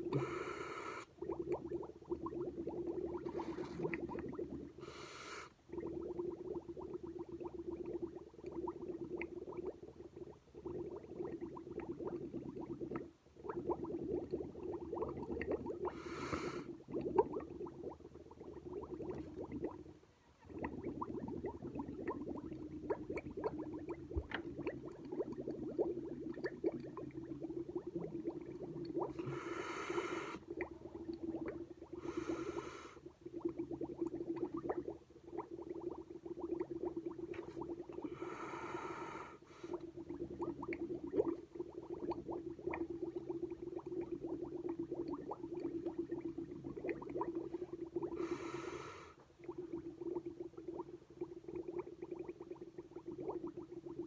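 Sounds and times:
breath drawn in through nose: 0:00.0 - 0:01.1, 0:04.8 - 0:05.6, 0:15.9 - 0:16.7, 0:29.1 - 0:30.4, 0:32.0 - 0:33.0, 0:38.0 - 0:39.8, 0:48.2 - 0:49.2
bubbling through a straw: 0:00.0 - 0:54.0.

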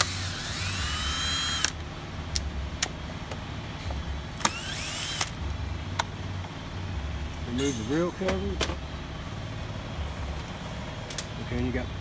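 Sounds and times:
cordless drill motor spinning: 0:00.0 - 0:01.8, 0:04.4 - 0:05.3.

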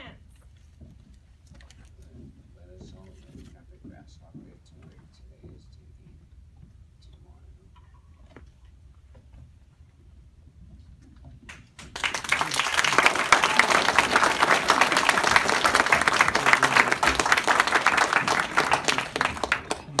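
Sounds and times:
audience applauding: 0:11.8 - 0:20.0.

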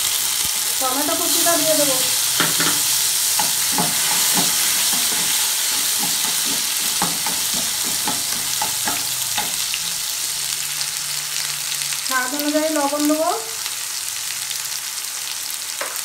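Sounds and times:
tomato sizzling in hot oil: 0:00.0 - 0:16.0
metal spatula scraping a pan: 0:02.2 - 0:10.1.

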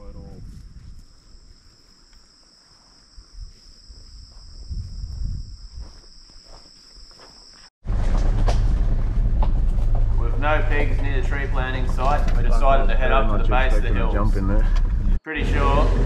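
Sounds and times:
insects buzzing: 0:00.6 - 0:07.7
knocks and rattles: 0:07.8 - 0:15.2
vehicle rumbling on dirt track: 0:07.8 - 0:16.0.

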